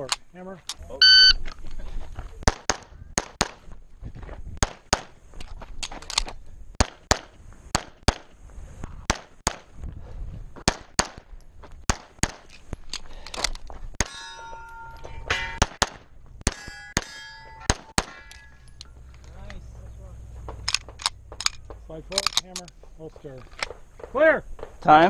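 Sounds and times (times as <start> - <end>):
electronic timer beep: 1.0 - 1.4
rapid handgun shots: 6.8 - 8.3, 9.1 - 9.7, 11.9 - 12.5.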